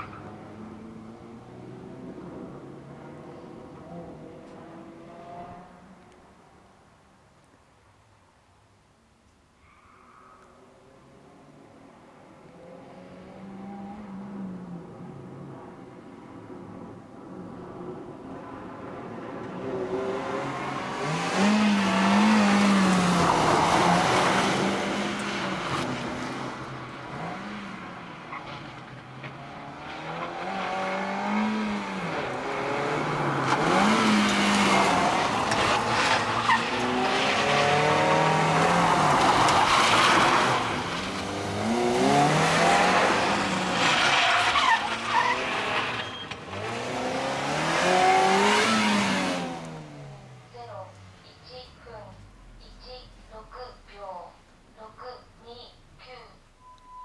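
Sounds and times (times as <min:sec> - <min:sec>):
car engine revving: 0:19.5 - 0:54.0.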